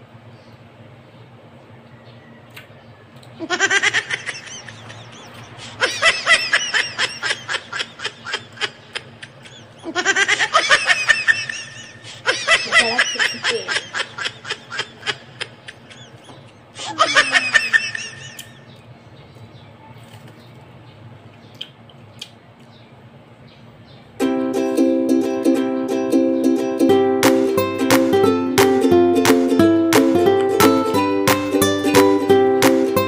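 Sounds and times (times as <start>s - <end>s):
high-pitched giggling laughter: 3.4s - 18.7s.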